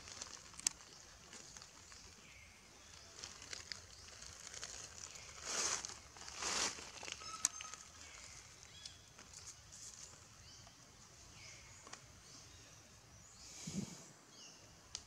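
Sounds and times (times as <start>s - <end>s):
dry leaves rustling and crunching: 0.0s - 10.4s
faint crackles: 0.0s - 10.8s.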